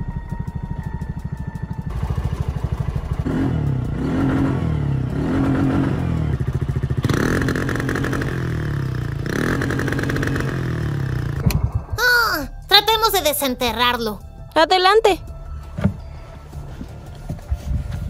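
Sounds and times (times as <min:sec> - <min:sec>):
small engine revving: 0:01.0 - 0:11.4.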